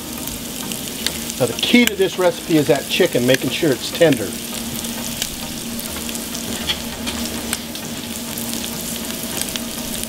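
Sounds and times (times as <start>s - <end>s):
chicken sizzling on grill: 0.0s - 10.0s
food sizzling in oil: 0.0s - 10.0s
steady low hum: 0.0s - 10.0s
crackles and pops: 1.0s - 2.1s, 4.6s - 10.0s.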